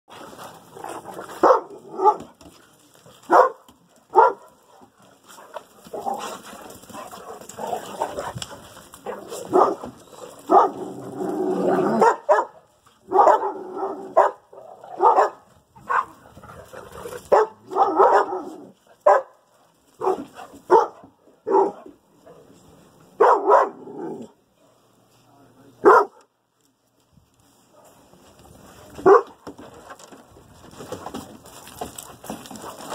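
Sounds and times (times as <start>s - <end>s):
dogs barking: 1.3s - 2.3s, 3.3s - 4.6s, 9.0s - 11.0s, 11.7s - 16.2s, 17.2s - 19.4s, 20.0s - 21.8s, 23.2s - 23.9s, 25.8s - 26.2s, 29.0s - 29.4s.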